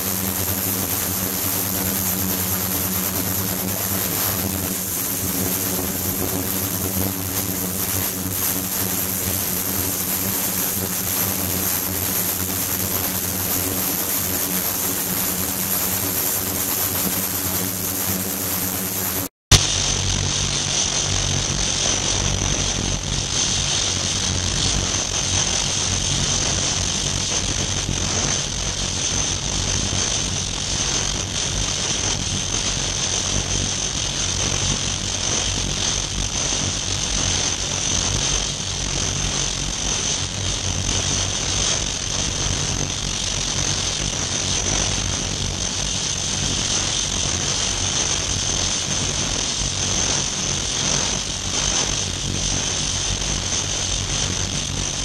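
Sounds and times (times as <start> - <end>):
ultrasonic cleaner whine and hum: 0.0 - 55.0.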